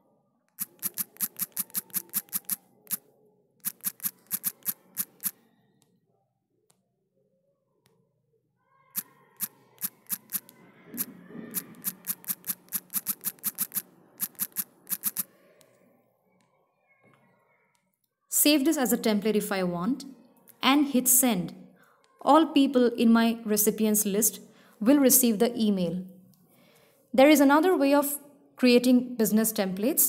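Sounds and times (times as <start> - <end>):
phone keyboard clicks: 0.6 - 3.0, 3.6 - 5.3, 9.0 - 15.3.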